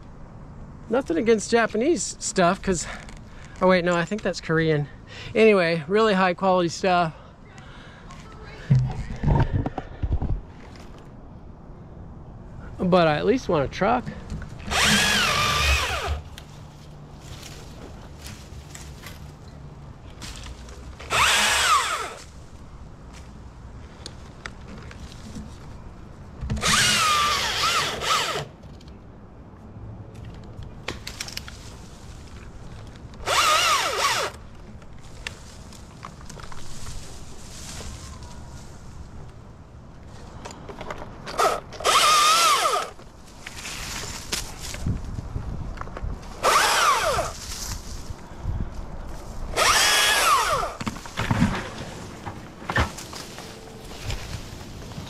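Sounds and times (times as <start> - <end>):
battery chainsaw cutting limbs: 14.6 - 16.4, 21.0 - 22.3, 26.6 - 28.5, 33.2 - 34.4, 41.3 - 43.0, 46.4 - 47.4, 49.5 - 50.8.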